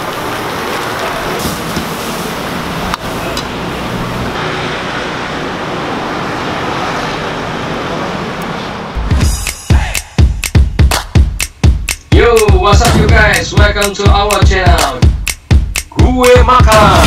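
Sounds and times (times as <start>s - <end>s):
wok sizzling: 0.0s - 4.4s
fanned fire rushing: 0.0s - 5.0s
road traffic: 0.0s - 15.9s.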